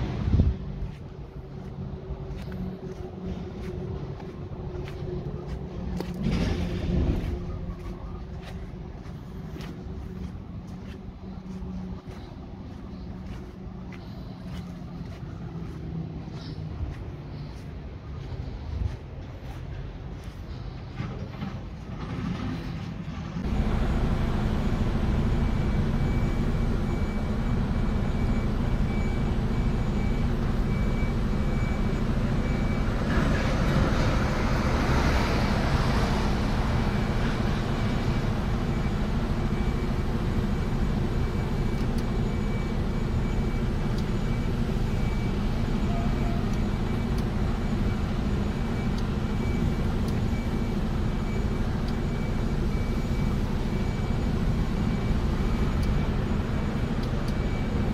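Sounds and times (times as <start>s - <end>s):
tyre and wind noise: 0.0s - 12.0s
truck engine rumble: 0.0s - 57.9s.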